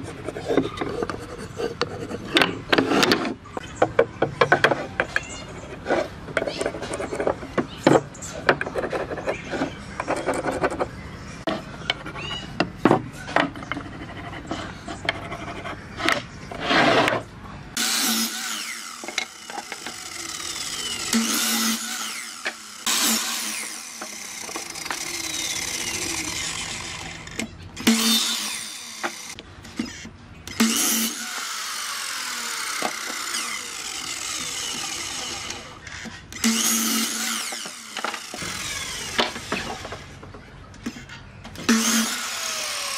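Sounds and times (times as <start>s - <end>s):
mitre saw cutting wood: 17.8s - 40.2s, 41.6s - 42.9s.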